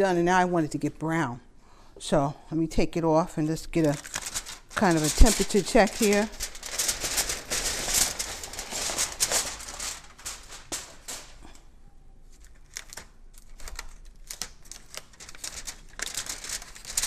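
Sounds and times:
aluminium foil crinkling: 3.5 - 11.6, 12.3 - 17.0.

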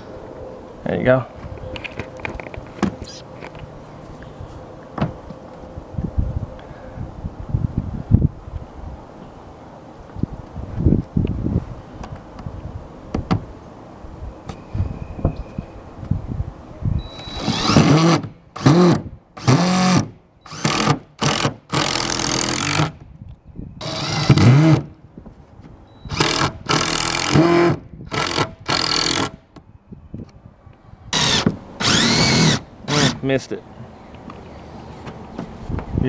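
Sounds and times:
impact driver driving screws: 17.2 - 23.0, 23.8 - 24.9, 26.1 - 29.4, 31.2 - 33.2.

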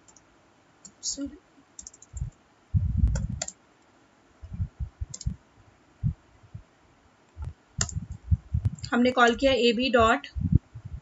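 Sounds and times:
keyboard typing: 1.8 - 2.4, 3.0 - 3.6, 5.0 - 5.4, 7.8 - 8.9.

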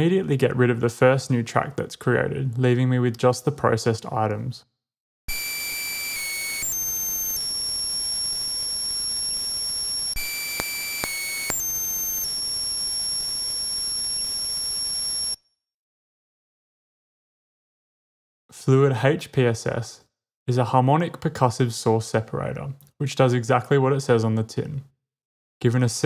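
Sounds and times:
high electronic tones: 5.3 - 15.4.

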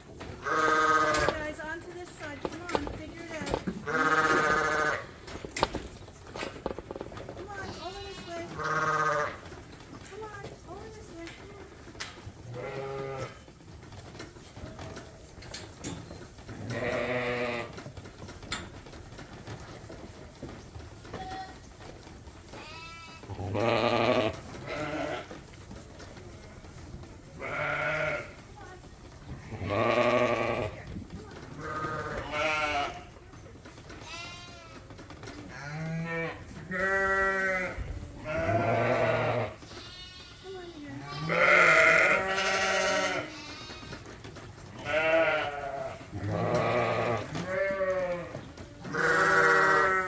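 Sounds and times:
sheep bleating: 3.8 - 5.1, 7.6 - 9.4, 27.4 - 28.4, 31.6 - 33.1, 35.5 - 43.9, 44.8 - 50.0.

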